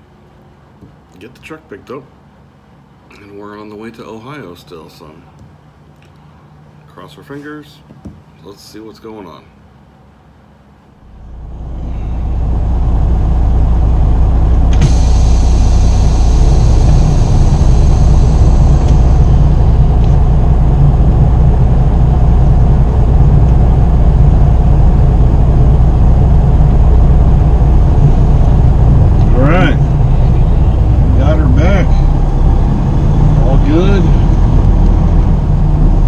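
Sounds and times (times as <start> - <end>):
diesel engine rumbling: 11.0 - 36.0
air hissing: 11.1 - 36.0.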